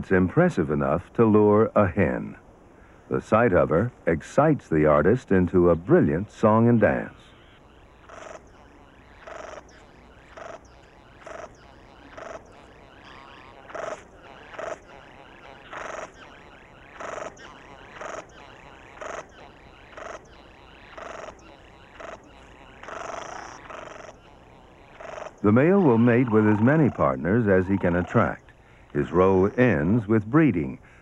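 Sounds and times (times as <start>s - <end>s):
bird short calls: 6.7s - 29.9s.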